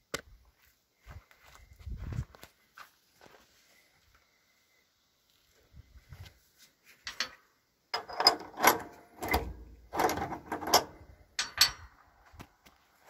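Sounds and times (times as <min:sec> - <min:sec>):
metal clanking and rattling: 0:08.0 - 0:12.0.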